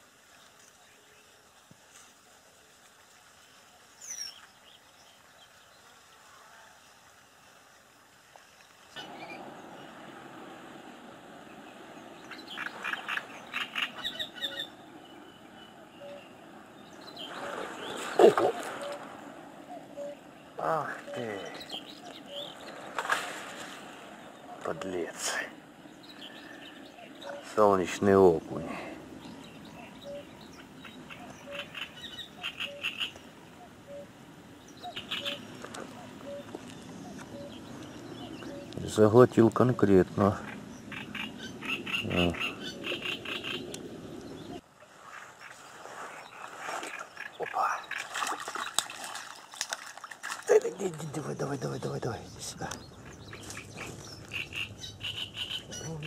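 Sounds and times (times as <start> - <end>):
wetland ambient hiss: 0.0 - 56.0
frog rattling calls: 12.3 - 14.8, 29.7 - 34.1, 34.8 - 38.8, 40.3 - 43.9, 52.6 - 56.0
frog low calls: 28.5 - 39.0, 39.7 - 44.6, 46.8 - 48.1, 52.4 - 56.0
animal harsh rapid calls: 40.4 - 43.7.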